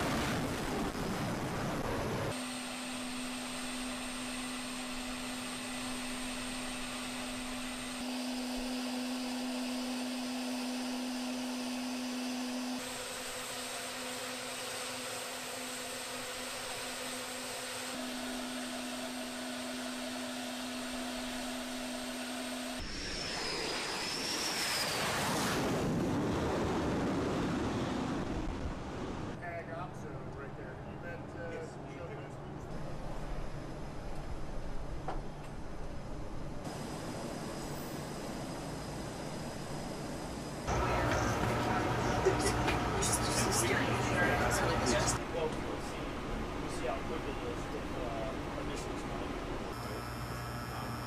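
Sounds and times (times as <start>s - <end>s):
flight deck machinery hum: 0.0s - 51.0s
jet engine rush with whistle: 16.4s - 29.4s, 36.6s - 45.2s.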